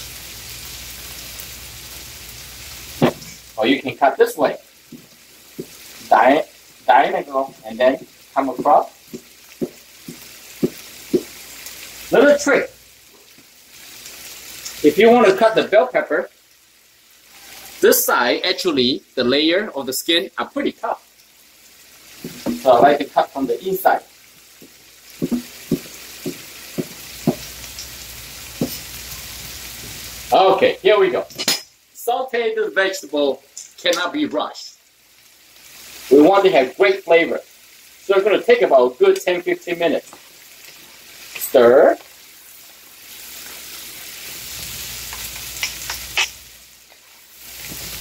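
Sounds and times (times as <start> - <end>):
vegetables sizzling in a pan: 0.0 - 48.0
cleaver chopping on wooden board: 9.6 - 11.3, 25.2 - 27.5
spatulas clicking against pan: 45.1 - 47.0.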